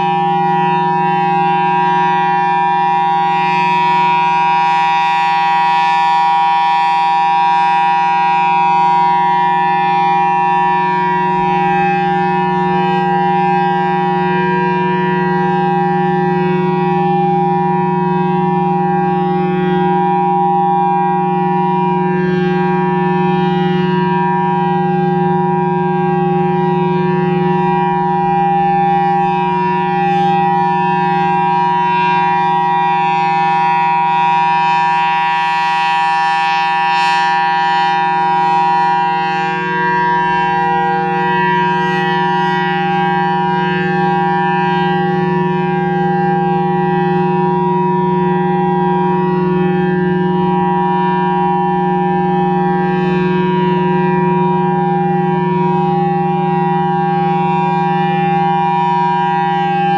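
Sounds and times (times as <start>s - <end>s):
rotating warning siren: 0.0s - 59.9s.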